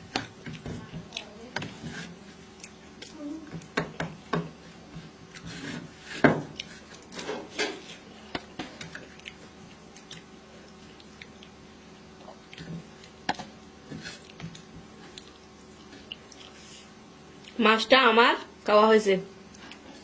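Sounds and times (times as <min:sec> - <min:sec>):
fingers mixing rice: 0:00.0 - 0:11.6.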